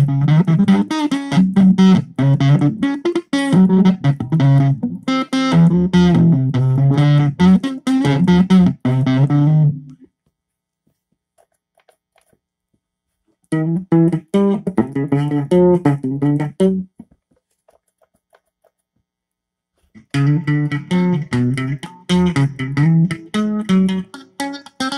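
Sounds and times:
distorted electric guitar riff: 0.0s - 10.0s, 13.5s - 16.9s, 20.0s - 24.9s.

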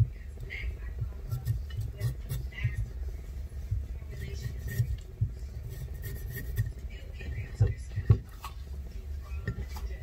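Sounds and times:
knife peeling potato: 1.2s - 3.0s, 4.0s - 7.0s.

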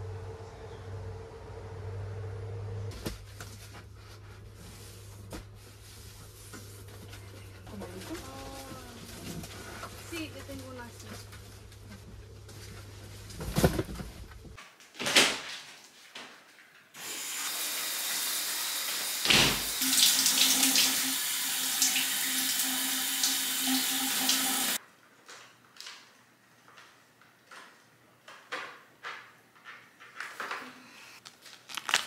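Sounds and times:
shower spray running: 17.0s - 24.8s.

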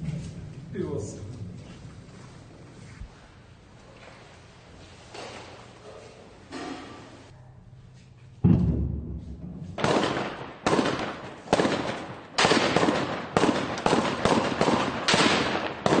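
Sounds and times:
deep boom: 8.4s - 10.4s
echoing gunshots: 8.4s - 16.0s.

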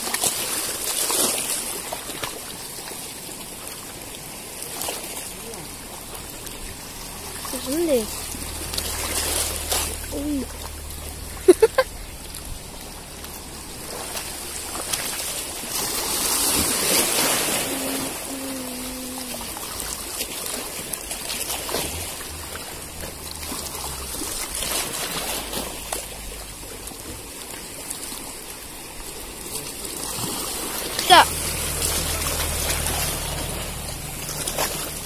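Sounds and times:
sea water lapping over rocks: 0.0s - 35.0s.

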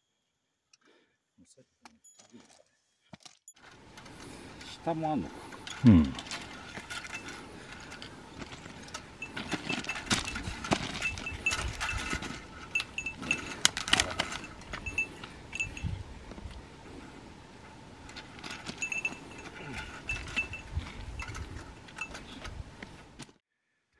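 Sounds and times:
footsteps on a trail: 2.1s - 23.4s
small bell jingling: 9.0s - 16.0s, 18.3s - 22.4s.

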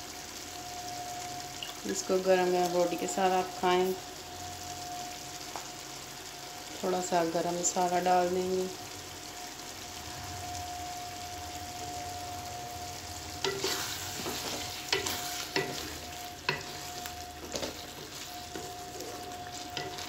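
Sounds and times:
curry sizzling: 0.0s - 20.0s
spatula scraping a pan: 13.4s - 20.0s.

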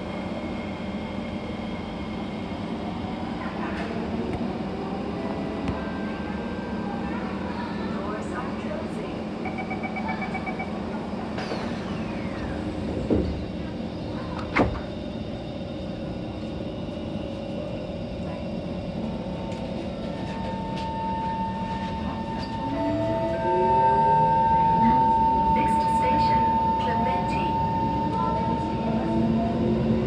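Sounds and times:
train car running rumble: 0.0s - 30.0s
rapid door warning beeps: 9.4s - 10.8s, 21.0s - 28.9s
sliding train doors knocking shut: 14.3s - 14.9s.

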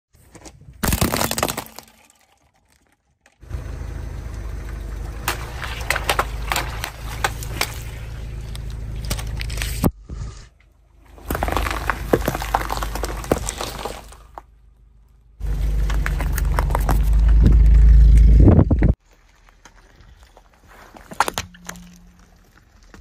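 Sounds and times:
glass bulbs crunching: 0.8s - 3.3s, 4.9s - 10.0s, 10.8s - 14.6s, 19.1s - 23.0s
tyre rolling low rumble: 10.7s - 20.9s.

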